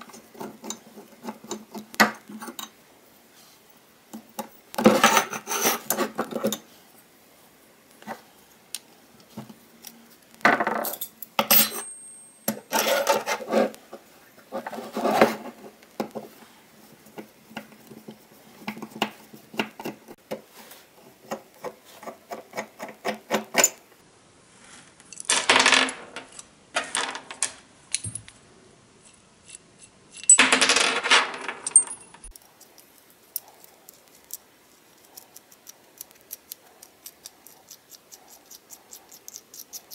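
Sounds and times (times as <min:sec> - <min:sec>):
metal plane parts clinking: 0:10.8 - 0:13.2.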